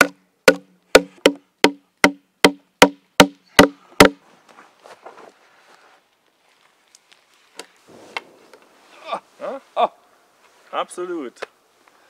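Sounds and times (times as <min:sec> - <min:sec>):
hammer knocking wooden wedge: 0:00.0 - 0:04.2.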